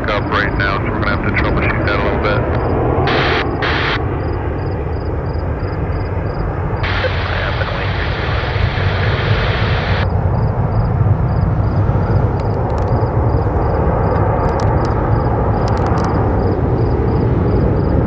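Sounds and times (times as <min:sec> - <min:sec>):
radio hiss: 0:00.0 - 0:04.0, 0:06.8 - 0:10.0
jet engines rumbling: 0:00.0 - 0:18.0.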